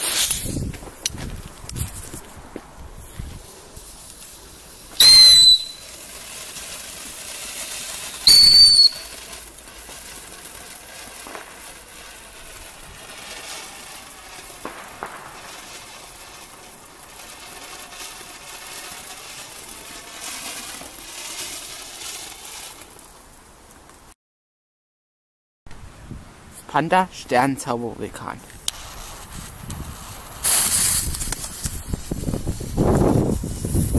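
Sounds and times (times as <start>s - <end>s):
firework whistles: 0.0s - 0.7s, 3.0s - 23.4s, 28.6s - 33.9s
firework fountain hissing: 0.0s - 24.1s, 28.4s - 33.9s.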